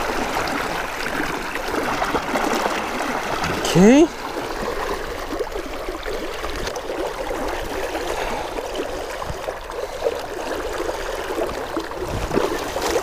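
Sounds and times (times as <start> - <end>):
shallow river water flowing: 0.0 - 13.0
water rippling around legs: 0.0 - 13.0.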